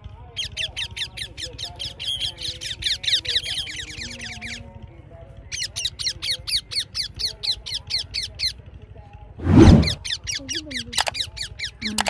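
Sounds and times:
parakeets screeching: 0.4s - 4.7s, 9.8s - 12.0s.

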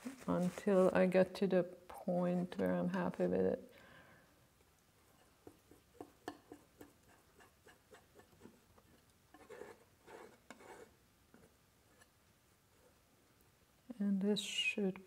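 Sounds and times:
palette knife scraping paint: 5.1s - 12.1s.

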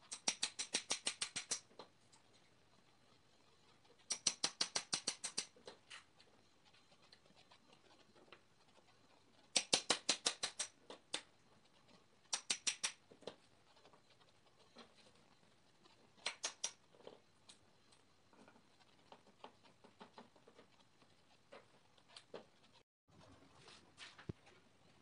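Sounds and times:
hammer tapping metal: 4.1s - 5.5s, 12.3s - 13.0s.

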